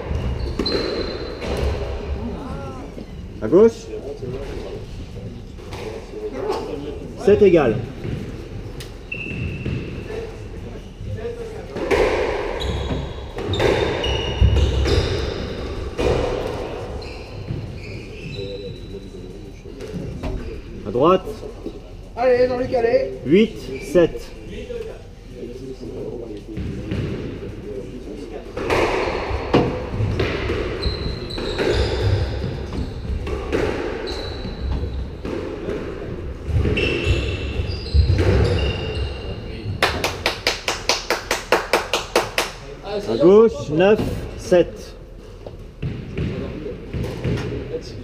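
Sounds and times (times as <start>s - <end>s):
squash ball hitting walls: 0.0s - 2.2s, 11.8s - 17.8s, 28.5s - 38.7s, 45.8s - 47.8s
shoes squeaking on wooden floor: 0.0s - 4.8s, 7.2s - 11.3s, 12.3s - 20.8s, 29.5s - 39.8s.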